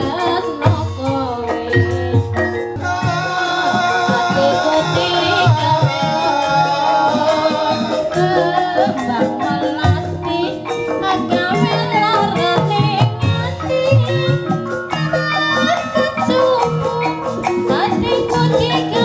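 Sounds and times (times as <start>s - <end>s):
person singing wavering melody: 0.0s - 19.0s
struck metallophone tones: 0.0s - 19.0s
drum beat: 0.6s - 10.2s.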